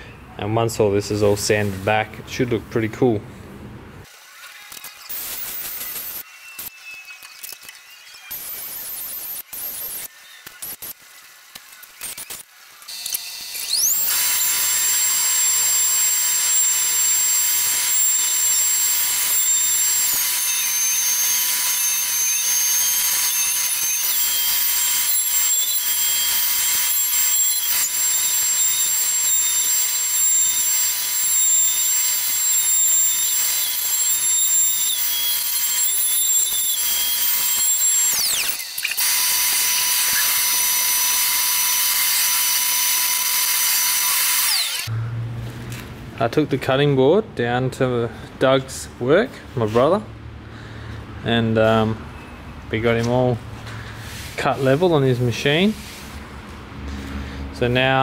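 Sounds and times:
wood cutting noise: 4.0s - 45.9s
router spindle high-pitched whine: 4.1s - 44.9s.

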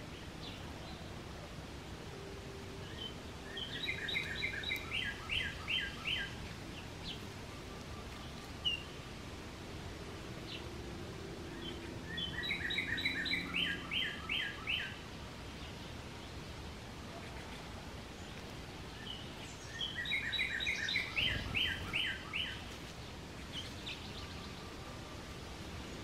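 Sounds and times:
songbird chirping song: 0.0s - 26.0s.

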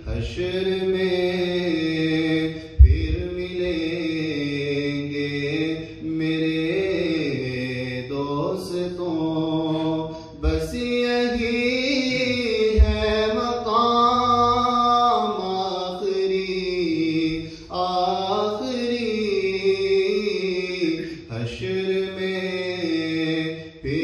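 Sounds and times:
man singing into a microphone: 0.0s - 24.0s
low thumps: 2.7s - 3.9s, 10.4s - 14.0s.

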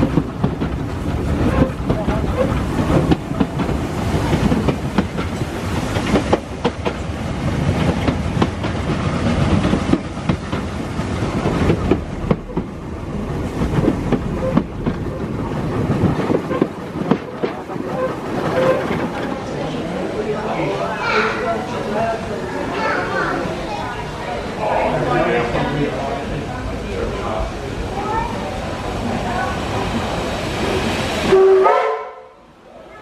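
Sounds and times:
clickety-clack of rail joints: 0.0s - 19.8s
train wheels rumbling on rails: 0.0s - 31.6s
knocks and rattles: 7.6s - 19.4s.

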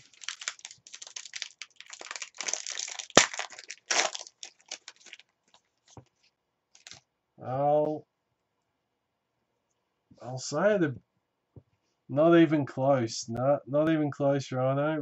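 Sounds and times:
cards ticking: 0.0s - 6.0s
foil pack crinkling and tearing: 0.0s - 6.0s, 6.8s - 7.0s.

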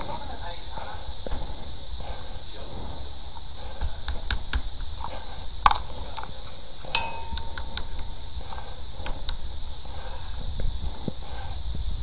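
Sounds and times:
high-pressure hose hissing: 0.0s - 12.0s
ringing metal clink: 6.9s - 7.6s.

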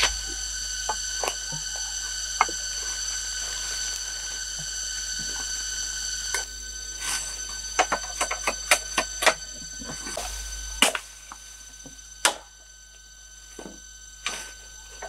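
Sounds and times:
machete chopping bamboo: 10.8s - 11.1s, 12.2s - 12.5s.

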